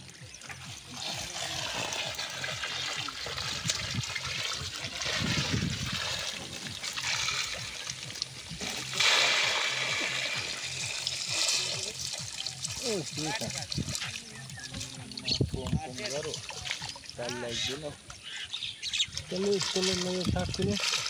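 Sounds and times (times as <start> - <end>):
water streaming off fish trap: 0.1 - 17.9, 19.1 - 21.0
loud water splash: 0.6 - 14.0.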